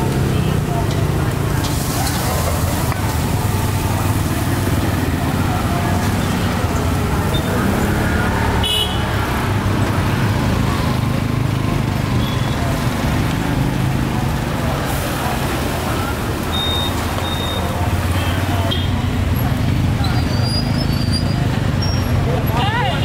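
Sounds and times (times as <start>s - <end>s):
street traffic rumble: 0.0s - 23.0s
short high beeps: 16.5s - 17.6s.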